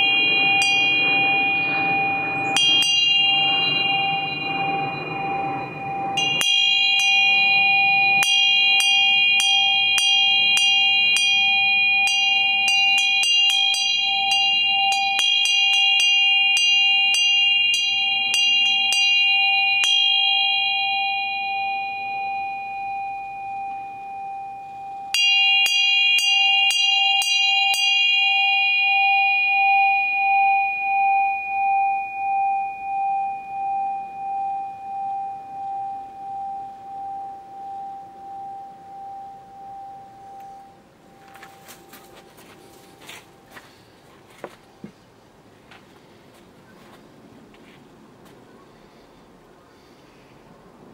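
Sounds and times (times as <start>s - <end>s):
bell tapped ringing: 0.0s - 31.2s.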